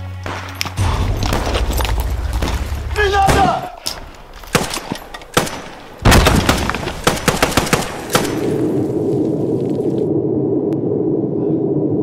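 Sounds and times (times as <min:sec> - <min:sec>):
single gunshots: 0:00.2 - 0:03.8, 0:04.5 - 0:08.7
rapid burst of gunfire: 0:05.4 - 0:08.5.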